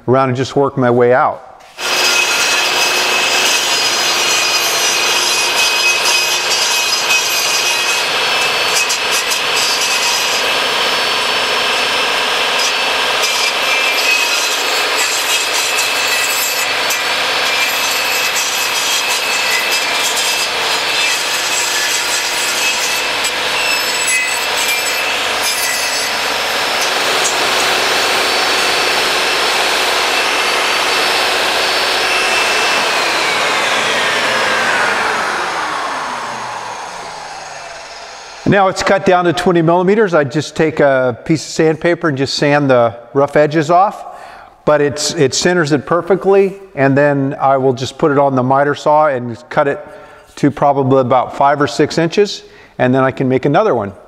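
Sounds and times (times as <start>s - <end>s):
table saw motor whine: 1.6s - 38.9s
saw blade cutting wood: 1.6s - 39.4s.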